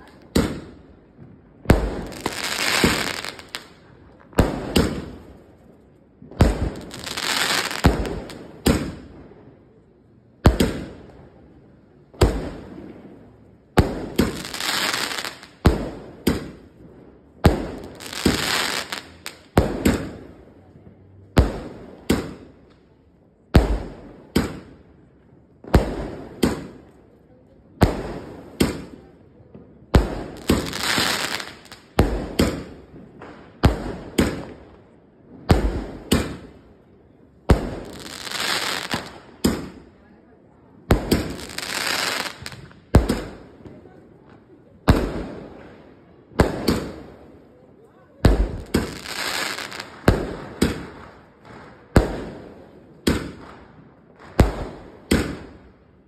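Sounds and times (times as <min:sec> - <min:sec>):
firework bangs: 0:00.0 - 0:09.6, 0:10.4 - 0:11.4, 0:12.1 - 0:22.7, 0:23.4 - 0:24.9, 0:25.6 - 0:27.0, 0:27.7 - 0:47.4, 0:48.1 - 0:55.8
firework crackling: 0:00.0 - 0:09.6, 0:12.2 - 0:20.8, 0:29.8 - 0:45.6, 0:46.3 - 0:55.6.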